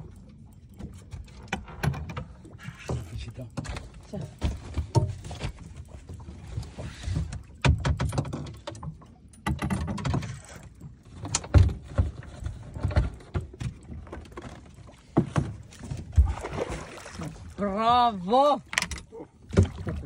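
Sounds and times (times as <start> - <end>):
knocks and clatter on boat deck: 0.7 - 17.4, 18.7 - 20.0
rush of wind and water: 4.4 - 20.0.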